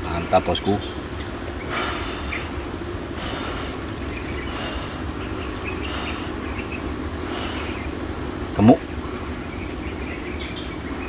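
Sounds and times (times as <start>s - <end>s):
insects buzzing: 0.0s - 11.0s
low steady rumble: 0.0s - 11.0s.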